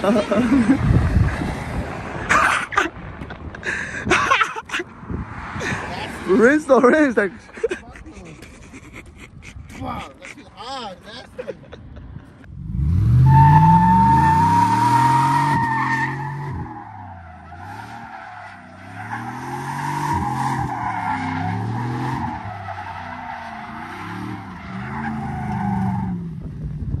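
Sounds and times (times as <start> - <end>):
truck engine revving: 12.6 - 26.4.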